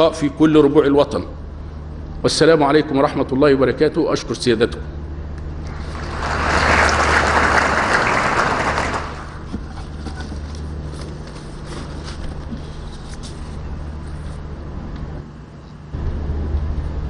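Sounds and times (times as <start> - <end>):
steady low hum: 0.0 - 17.0
audience applauding: 5.7 - 9.5.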